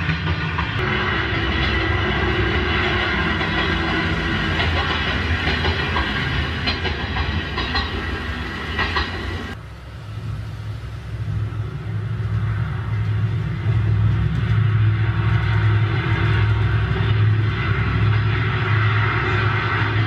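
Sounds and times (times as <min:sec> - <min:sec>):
wheels clicking over rail joints: 0:00.0 - 0:09.8
low hum: 0:00.2 - 0:20.0.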